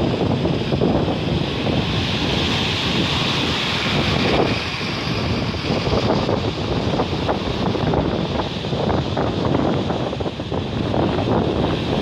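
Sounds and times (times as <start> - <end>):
sea surf on pebble beach: 0.0 - 12.0
wind buffeting microphone: 0.0 - 12.0.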